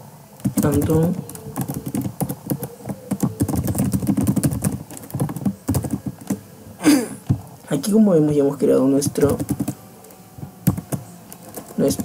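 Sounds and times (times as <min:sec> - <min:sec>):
keyboard typing: 0:00.4 - 0:06.4, 0:09.0 - 0:09.8, 0:10.6 - 0:12.0.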